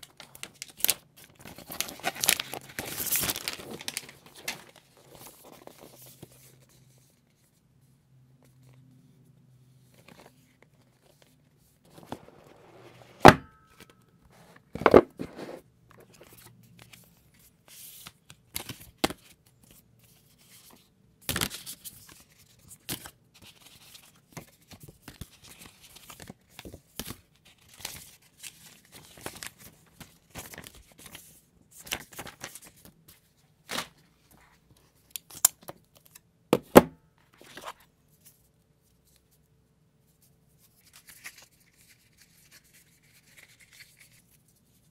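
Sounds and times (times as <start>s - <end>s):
cardboard and paper rustling: 0.0s - 7.6s, 9.7s - 34.7s, 37.2s - 38.4s.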